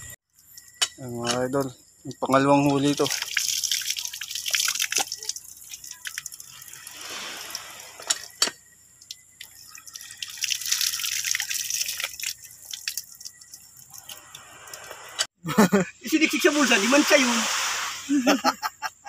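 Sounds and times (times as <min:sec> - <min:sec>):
water dripping and splashing: 0:00.3 - 0:15.3.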